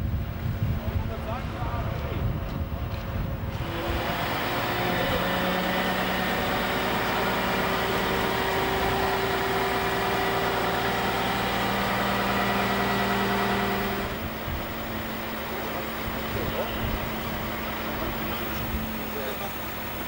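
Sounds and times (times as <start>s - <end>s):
steady whine: 0.0s - 20.0s
diesel engine running: 0.8s - 20.0s.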